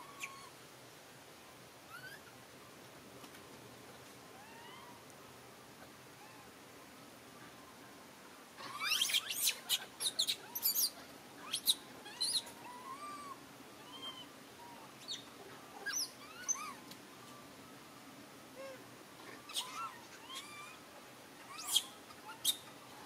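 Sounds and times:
monkeys squealing: 8.6s - 14.2s, 15.8s - 16.8s, 19.4s - 20.8s, 21.5s - 22.7s
monkey cooing: 8.6s - 15.2s, 18.6s - 20.8s.

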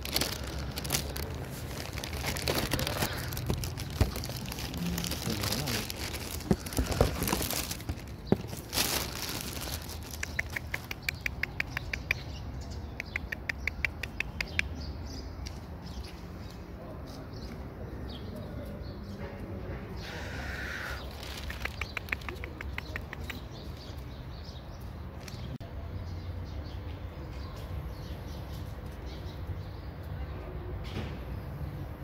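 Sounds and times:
bag rustling: 0.0s - 10.2s.

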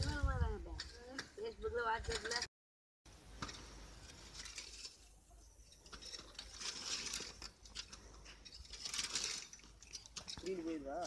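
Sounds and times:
plough blade scraping through soil: 5.7s - 10.9s.

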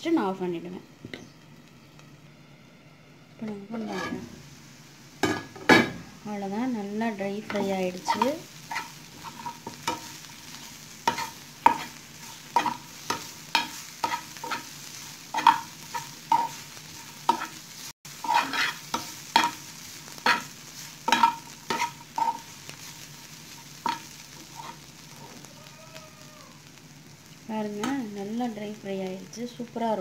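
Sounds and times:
faint sizzle: 0.0s - 30.0s
spatula scraping a frying pan: 3.7s - 4.4s, 7.4s - 25.0s.

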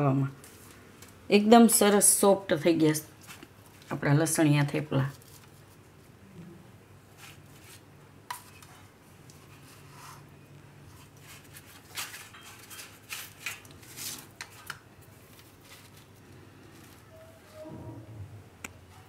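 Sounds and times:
flatbreads rustling: 2.8s - 6.2s, 7.0s - 17.6s.

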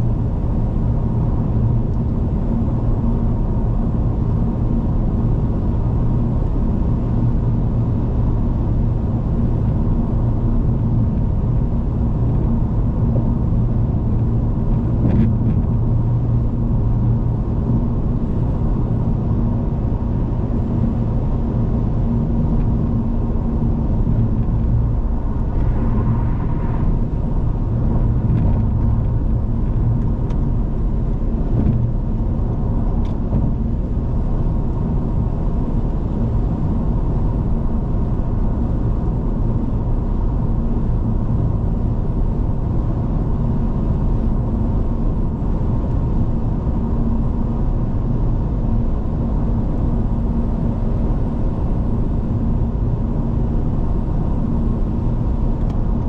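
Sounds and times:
car engine drone: 0.0s - 56.0s
tyres rumbling on road: 9.0s - 43.6s.

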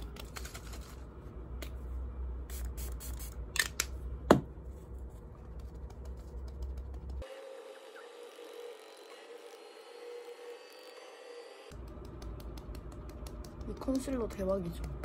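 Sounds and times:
low room hum: 0.0s - 15.0s
fingertips patting face: 11.8s - 14.1s.

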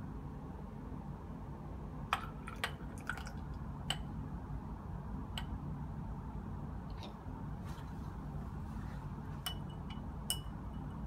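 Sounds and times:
low hum: 0.0s - 11.0s
glass clinking: 9.4s - 11.0s.

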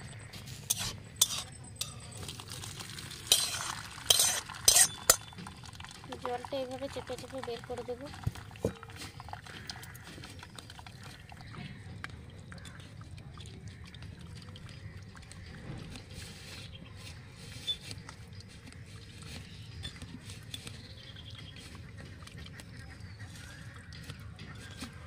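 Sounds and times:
water dripping: 0.0s - 16.2s
soft squelching: 0.0s - 25.0s.

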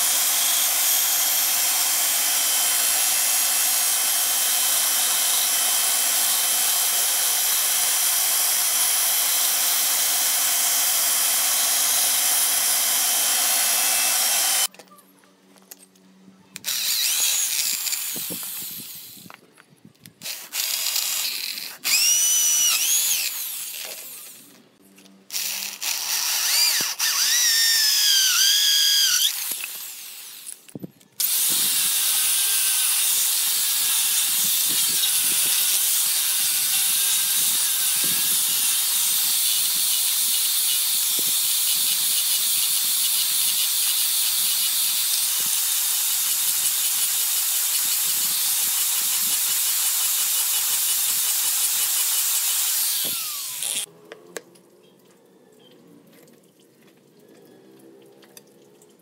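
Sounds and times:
angle grinder sanding wood: 0.0s - 3.4s, 11.3s - 14.7s, 46.3s - 53.9s
power drill whining: 0.0s - 14.7s, 16.6s - 19.4s, 20.2s - 24.6s, 25.3s - 53.9s.

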